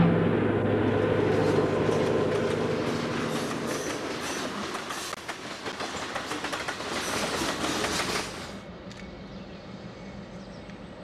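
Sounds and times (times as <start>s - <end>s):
low hum: 0.0s - 3.7s
freight train wheels clicking: 1.3s - 9.1s.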